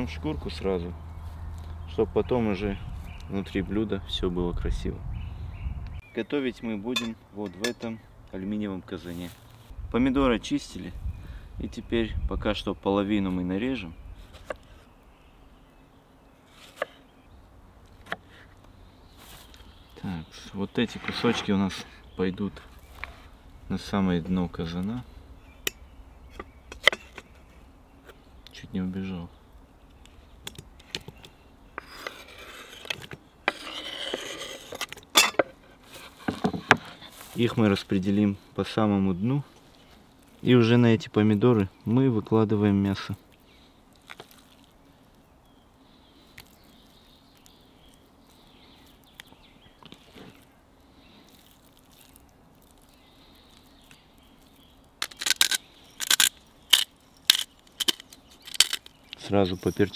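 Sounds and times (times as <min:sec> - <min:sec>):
knife scraping wooden board: 0:31.8 - 0:37.1
pepper mill grinding: 0:55.0 - 0:58.9.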